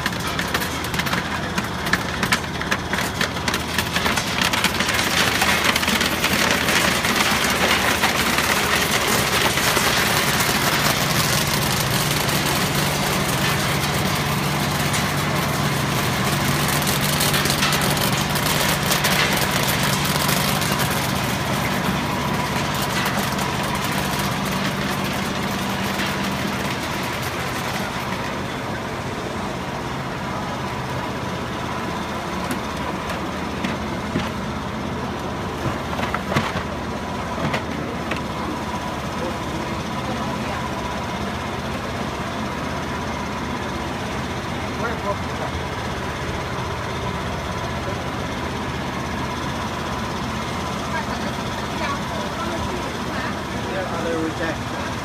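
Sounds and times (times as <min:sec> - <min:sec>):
nuts clattering down a chute: 0:00.0 - 0:28.2
machine hum: 0:00.0 - 0:55.0.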